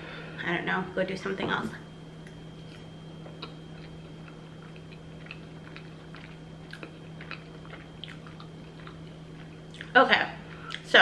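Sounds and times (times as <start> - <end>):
faint steady hum: 0.0 - 11.0
person chewing: 2.2 - 9.9.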